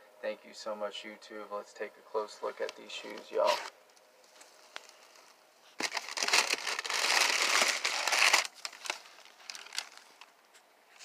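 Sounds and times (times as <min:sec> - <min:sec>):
tissue paper crinkling: 0:04.4 - 0:10.3.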